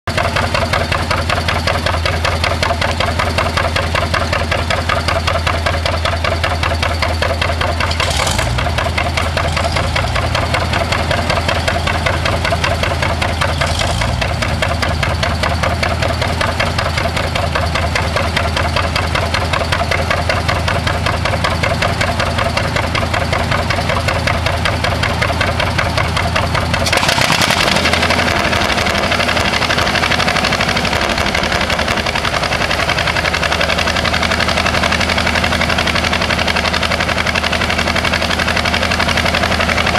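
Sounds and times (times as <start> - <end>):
two-cylinder engine popping: 0.1 - 39.9
loud harsh noise: 26.8 - 31.0.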